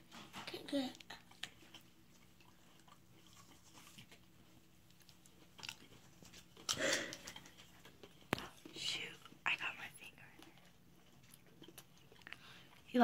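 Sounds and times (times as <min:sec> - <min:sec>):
children chewing coconut: 0:00.0 - 0:13.0.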